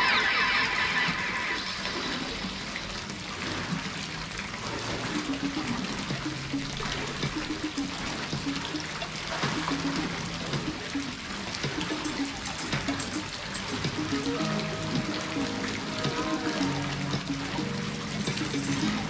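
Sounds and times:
pool water splashing: 0.0s - 19.0s
faint low musical notes: 5.0s - 19.0s.

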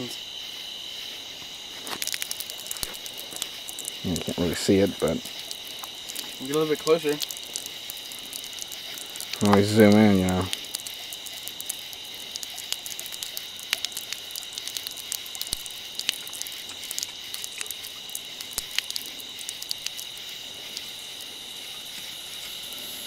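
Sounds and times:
night insects chorus: 0.0s - 23.0s
faint clicks and crackles: 1.8s - 4.6s, 5.2s - 20.9s.

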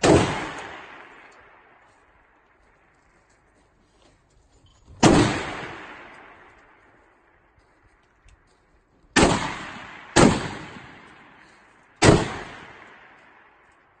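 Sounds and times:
rifle shots echoing: 0.0s - 2.9s, 4.9s - 7.3s, 9.1s - 14.0s.

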